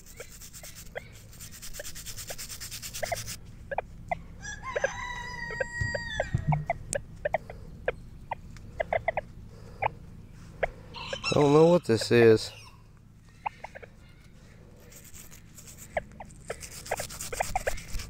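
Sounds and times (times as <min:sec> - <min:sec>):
chickens clucking: 0:03.0 - 0:14.4, 0:15.7 - 0:17.9
rooster crowing: 0:04.4 - 0:06.8, 0:10.9 - 0:12.0.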